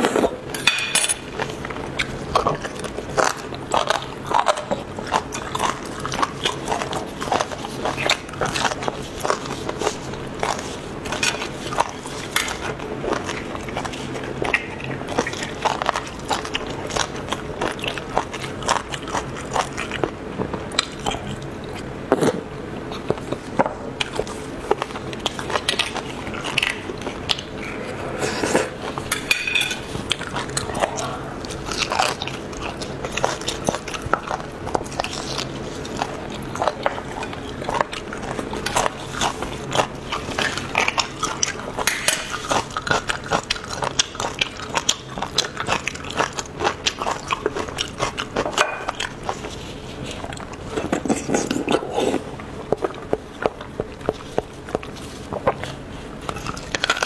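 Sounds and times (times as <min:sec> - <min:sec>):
chewing and mouth smacks: 0:01.2 - 0:21.9, 0:22.8 - 0:27.8, 0:28.5 - 0:57.0.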